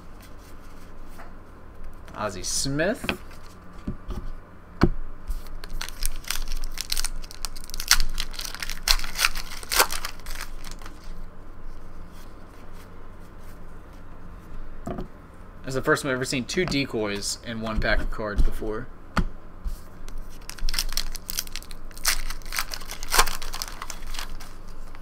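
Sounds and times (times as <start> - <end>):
cards rustling: 5.3 - 11.2, 20.1 - 25.0
wrapper tearing and crinkling: 5.4 - 11.2, 20.2 - 25.0.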